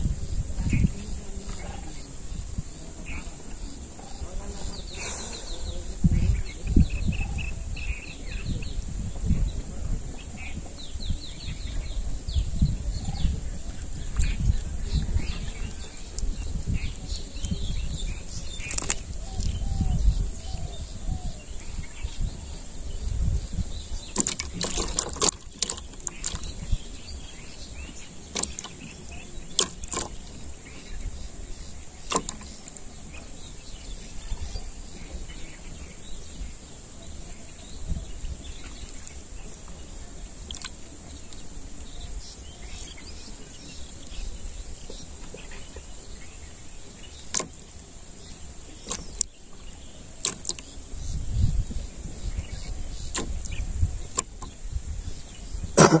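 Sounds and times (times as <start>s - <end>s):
wind gusting on microphone: 0.0s - 56.0s
sharp clicks and knocks: 24.2s - 26.5s, 28.3s - 28.8s, 29.6s - 30.2s, 32.1s - 32.8s, 47.3s - 47.7s, 50.2s - 50.7s, 53.1s - 54.6s, 55.8s - 56.0s.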